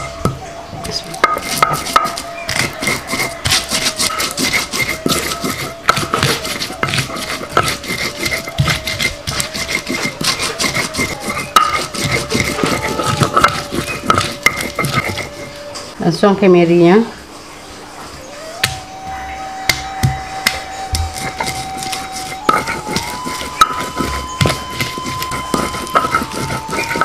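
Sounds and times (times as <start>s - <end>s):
stone pestle grinding: 0.0s - 15.8s, 19.7s - 27.0s
stone-on-stone clacks: 1.2s - 15.4s.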